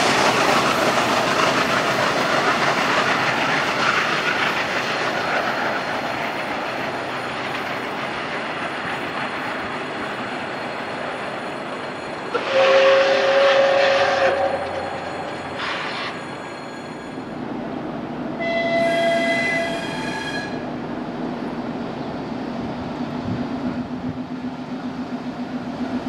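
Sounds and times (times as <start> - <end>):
steam locomotive rumbling past: 0.0 - 26.0
steam whistle blast: 12.3 - 16.2, 18.4 - 20.6.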